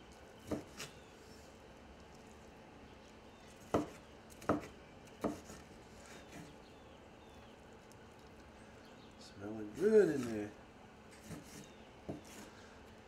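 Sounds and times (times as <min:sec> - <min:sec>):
knife chopping on wooden board: 0:00.4 - 0:00.9, 0:03.6 - 0:05.6, 0:11.2 - 0:12.5.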